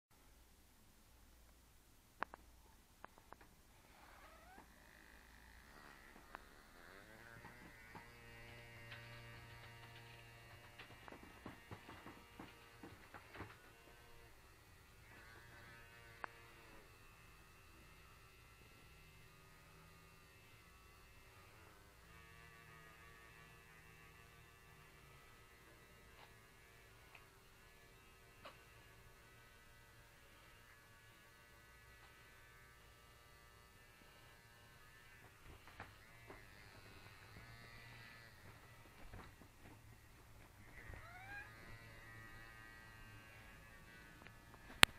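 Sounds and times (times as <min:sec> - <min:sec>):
faint vibrator buzz: 0:03.7 - 0:44.9
vibrator motor buzzing: 0:31.4 - 0:40.0, 0:40.6 - 0:44.9.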